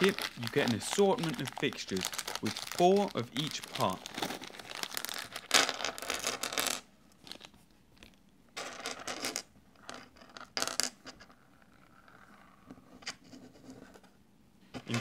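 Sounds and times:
plastic bag crinkling: 0:00.0 - 0:07.5.

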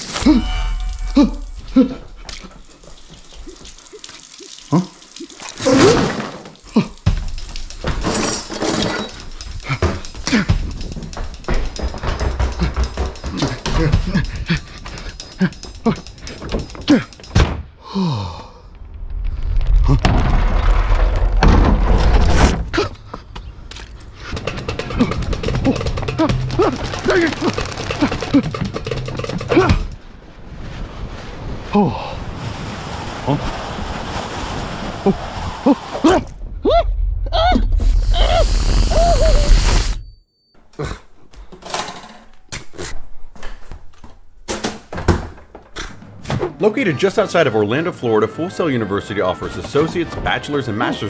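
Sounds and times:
faucet water running into sink: 0:02.3 - 0:12.8
music: 0:07.1 - 0:17.5, 0:24.3 - 0:30.0, 0:46.4 - 0:51.0
plastic bin crumpling rumble: 0:24.4 - 0:28.8.

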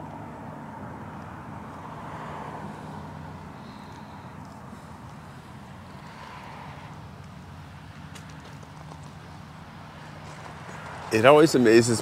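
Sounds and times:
low outdoor rumble: 0:00.0 - 0:12.0
light footsteps: 0:07.2 - 0:11.6.

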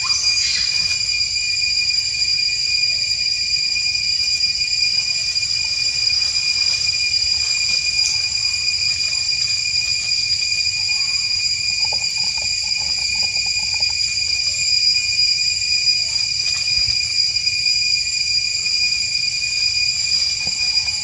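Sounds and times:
high-pitched insect chorus: 0:00.0 - 0:21.0.

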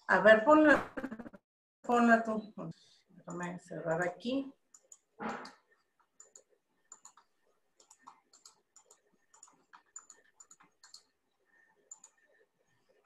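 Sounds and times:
mouse and keyboard clicking: 0:04.7 - 0:11.2, 0:11.8 - 0:12.3.

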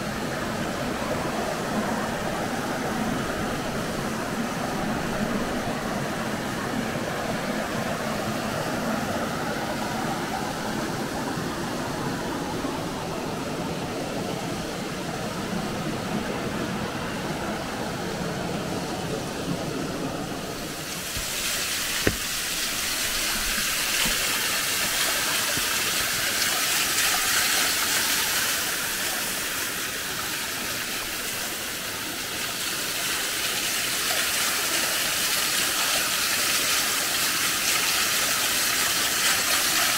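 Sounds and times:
steady rushing noise: 0:00.0 - 0:33.3
waterfall roaring: 0:00.0 - 0:39.9.

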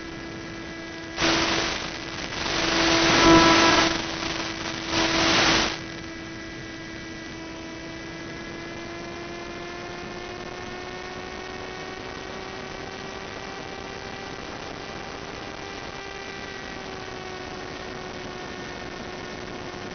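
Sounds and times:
electric motor and propeller drone: 0:01.0 - 0:05.9
radio static burst: 0:01.2 - 0:06.0.

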